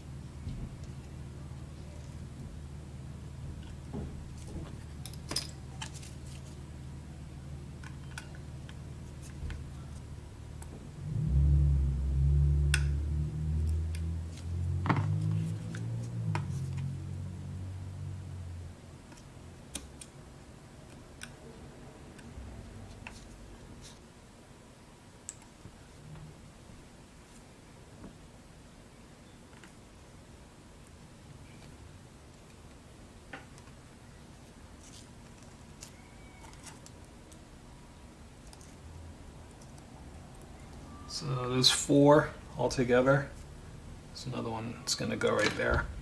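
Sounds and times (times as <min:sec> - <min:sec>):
loud low rumble: 0:11.0 - 0:16.3.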